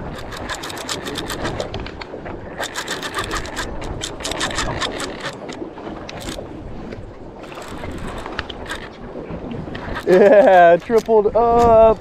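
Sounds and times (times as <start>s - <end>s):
fishing reel clicking rapidly: 0.0s - 1.6s, 2.6s - 5.4s
wind: 0.0s - 12.0s.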